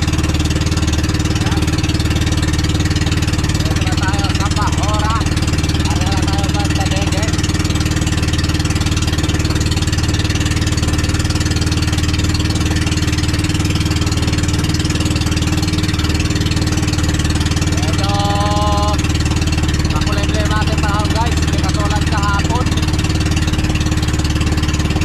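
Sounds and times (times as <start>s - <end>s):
boat engine running: 0.0s - 25.0s
man calling out: 3.6s - 7.4s, 17.7s - 19.1s, 19.9s - 22.8s.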